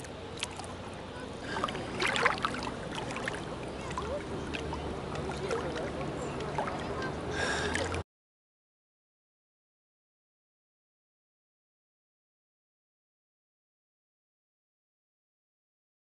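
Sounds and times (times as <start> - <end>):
sea water lapping and splashing: 0.0 - 8.0.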